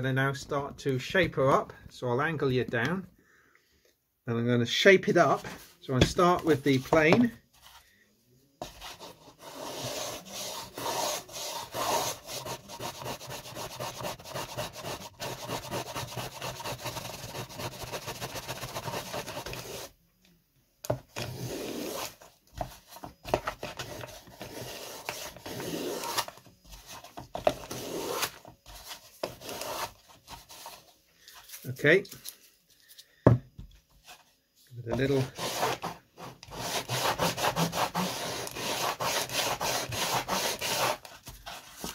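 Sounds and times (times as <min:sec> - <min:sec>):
hand plane shaving wood: 0:08.9 - 0:19.9, 0:23.8 - 0:26.3, 0:27.6 - 0:28.4, 0:35.0 - 0:41.1.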